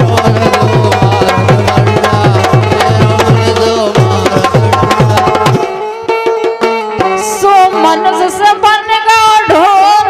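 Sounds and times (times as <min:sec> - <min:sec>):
harmonium steady notes: 0:00.0 - 0:10.0.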